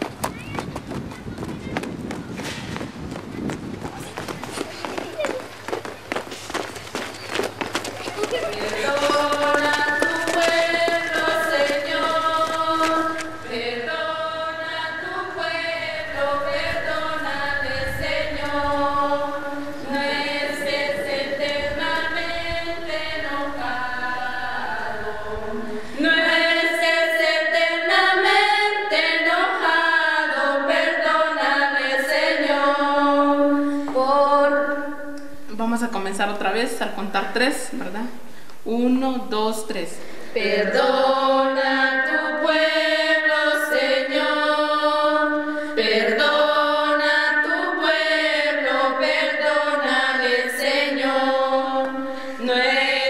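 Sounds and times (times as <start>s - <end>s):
women singing a hymn in unison: 8.4s - 35.5s, 40.0s - 53.0s.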